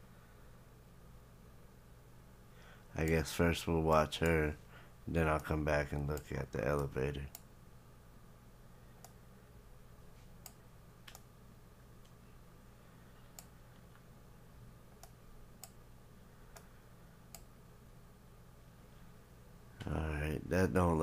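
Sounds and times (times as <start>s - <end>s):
low steady hum: 0.0s - 21.0s
computer controls clicking: 3.0s - 3.2s, 5.3s - 7.5s, 9.0s - 9.2s, 10.4s - 11.3s, 13.3s - 14.1s, 15.0s - 15.8s, 17.3s - 17.6s.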